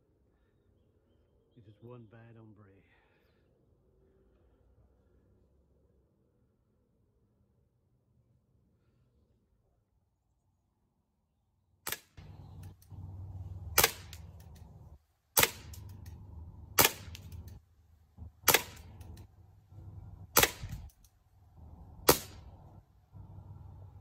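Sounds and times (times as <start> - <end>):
airsoft revolver shots cracking: 11.8 - 17.6, 18.2 - 19.3, 20.2 - 21.1, 21.9 - 22.8
revolver clicks: 11.9 - 17.6, 18.3 - 19.3.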